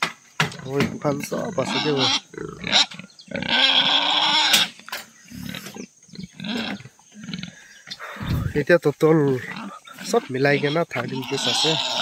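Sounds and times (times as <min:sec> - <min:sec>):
pigs grunting: 0:00.5 - 0:12.0
pig squealing harshly: 0:01.4 - 0:07.6, 0:09.4 - 0:12.0.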